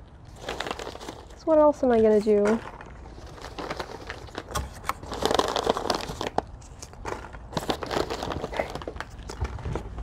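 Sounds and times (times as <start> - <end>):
plastic wrappers crinkling: 0.0 - 10.0
hands rummaging in packing peanuts: 0.2 - 10.0.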